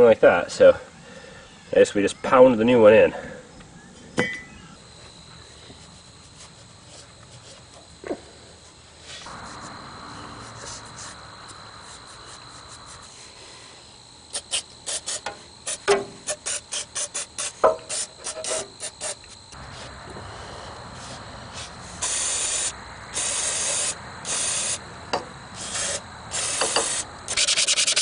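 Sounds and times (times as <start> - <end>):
steady hiss: 4.7 - 28.0
spray can ball rattling: 25.6 - 28.0.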